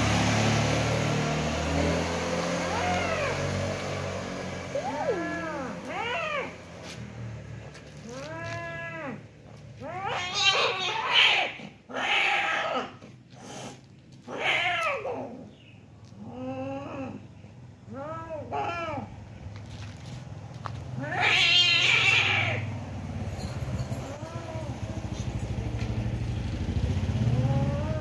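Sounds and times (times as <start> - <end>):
cats yowling in a fight: 2.5 - 3.7, 4.7 - 6.8, 8.0 - 13.2, 14.2 - 15.5, 16.2 - 17.3, 17.9 - 19.2, 21.0 - 22.7, 23.4 - 25.4, 27.2 - 28.0.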